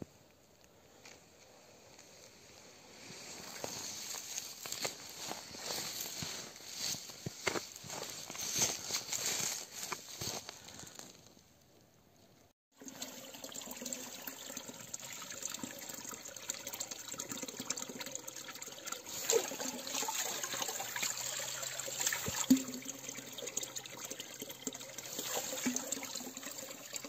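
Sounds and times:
water running in channel: 12.7 - 27.0
sharp splashes: 19.1 - 23.0.

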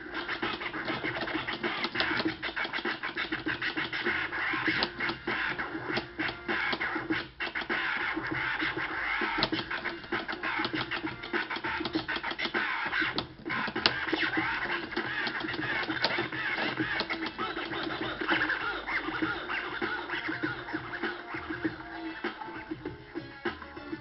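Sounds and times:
turntable scratching: 0.0 - 24.0.

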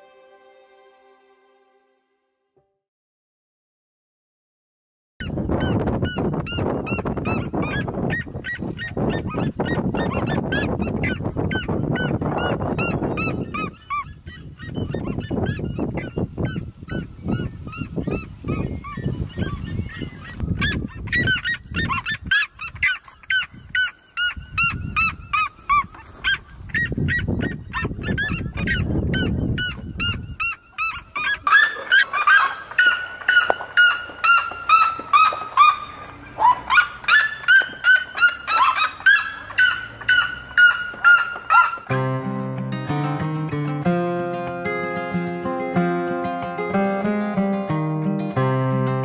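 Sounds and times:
birds calling in rapid descending notes: 5.3 - 42.5.

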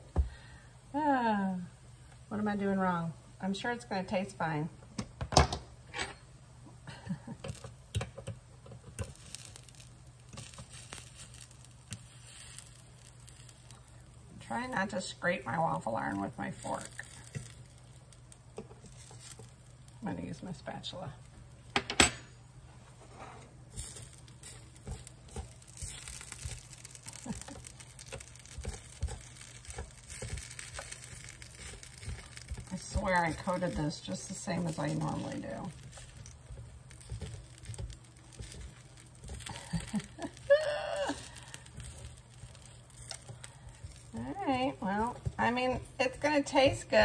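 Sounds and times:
fork scraping waffle iron: 18.6 - 19.7, 23.0 - 40.5.

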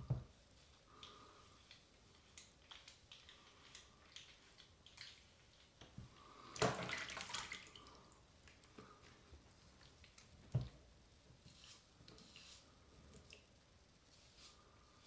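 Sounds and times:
water splash: 6.6 - 7.8.

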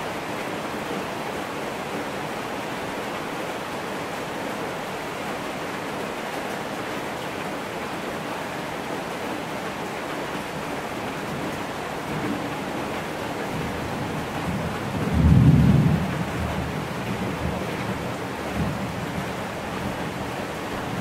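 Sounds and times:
steady rain: 0.0 - 21.0
low rumble of thunder: 13.6 - 20.0.

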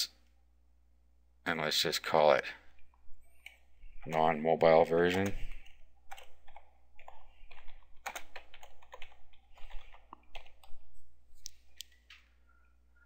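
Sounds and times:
keyboard typing clicks: 3.4 - 10.8.

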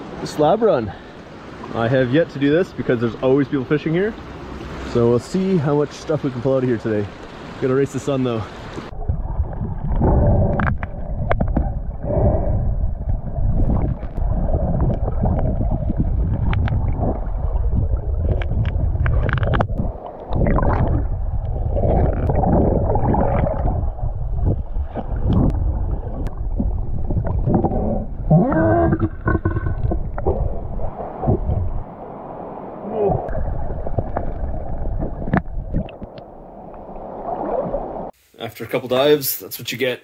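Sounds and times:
underwater river current rumble: 0.0 - 38.2.

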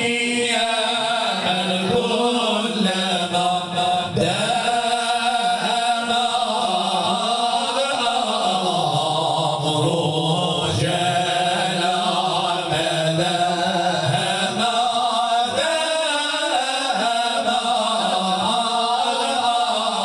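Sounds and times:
men chanting religious praise: 0.0 - 20.0.

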